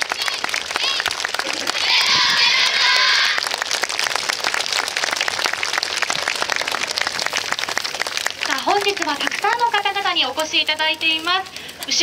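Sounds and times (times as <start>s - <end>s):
crowd cheering high-pitched: 0.0s - 8.1s
audience applause: 0.0s - 12.0s.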